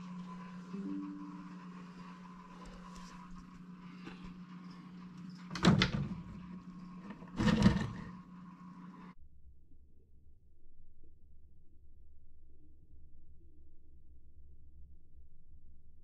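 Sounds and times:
electrical hum: 0.0 - 9.2
glass doors scraping: 0.3 - 8.2.

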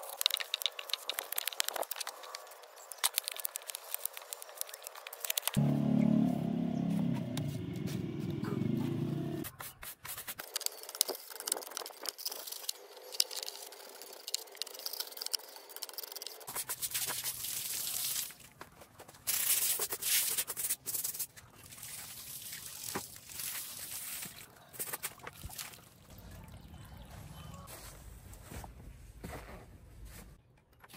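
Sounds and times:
low hum: 5.6 - 9.4.

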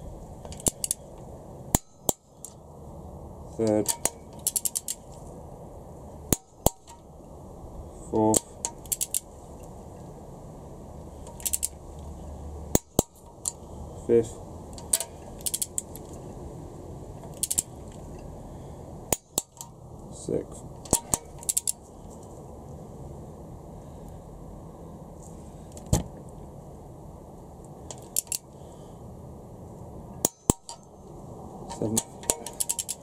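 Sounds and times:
torque wrench clicks: 0.5 - 1.0, 3.7 - 5.0, 8.3 - 9.3, 11.2 - 11.8, 14.8 - 16.1, 17.3 - 17.7, 20.8 - 21.8, 27.9 - 28.4, 31.7 - 33.0
ratchet ticking: 3.9 - 5.0, 8.4 - 9.3, 11.2 - 11.8, 14.8 - 15.9, 17.3 - 17.7, 20.8 - 21.8, 32.0 - 33.0.

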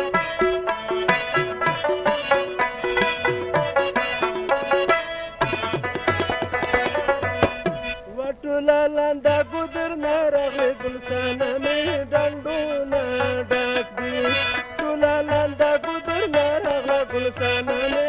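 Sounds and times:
plucked notes: 0.0 - 8.1
harmonium melody: 0.0 - 18.0
tabla pattern: 0.0 - 18.0.

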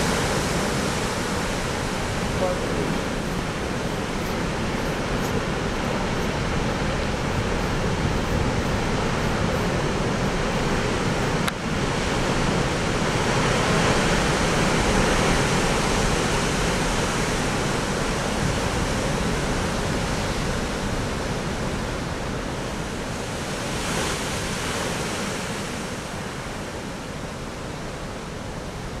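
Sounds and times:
heavy surf roaring: 0.0 - 29.0
strong wind: 0.0 - 29.0.

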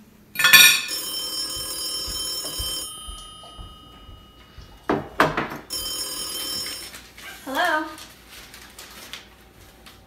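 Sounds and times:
old telephone bell ringing: 0.4 - 4.9, 5.6 - 7.0.

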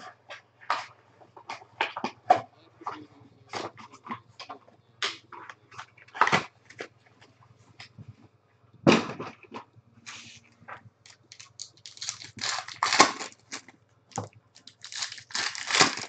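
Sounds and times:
faint low hum: 0.0 - 16.0
foil wrappers tearing and crinkling: 11.1 - 16.0.

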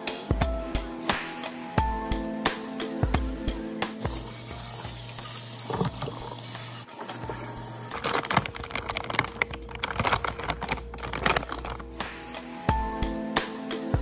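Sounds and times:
tap water running into sink: 4.1 - 7.7
plastic packet crinkling: 5.6 - 12.0.

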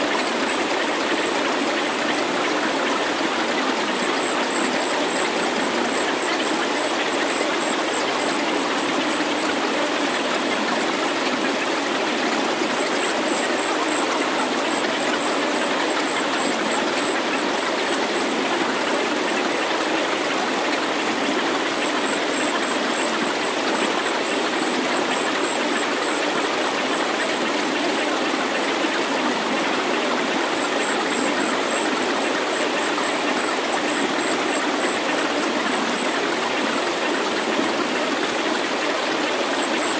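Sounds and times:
steady rushing white noise: 0.0 - 9.9
faint high-pitched pulsing tone: 0.0 - 39.9.

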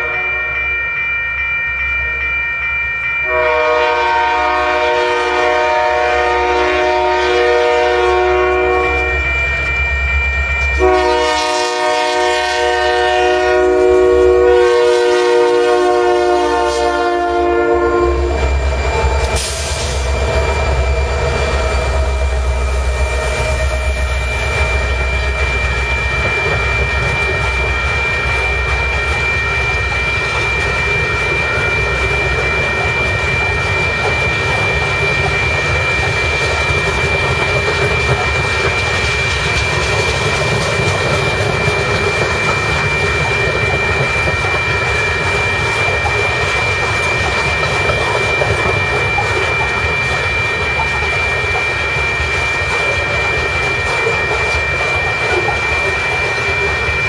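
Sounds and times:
high ringing tone: 0.0 - 57.0
steel wheels rolling on rail: 0.0 - 57.0
deep diesel locomotive rumble: 3.3 - 45.2.

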